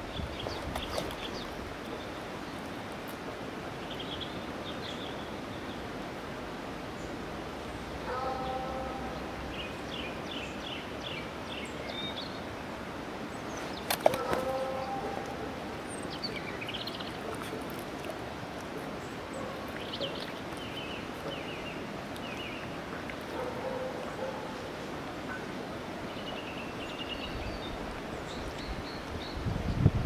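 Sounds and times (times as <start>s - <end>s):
outdoor background noise: 0.0s - 30.0s
songbird chirping: 6.9s - 12.7s, 13.3s - 29.9s.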